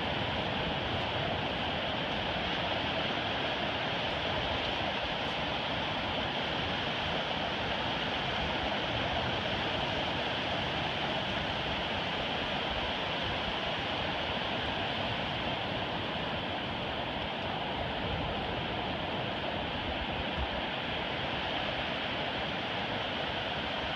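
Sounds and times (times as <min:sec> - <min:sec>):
ocean surf on beach: 0:00.0 - 0:23.9.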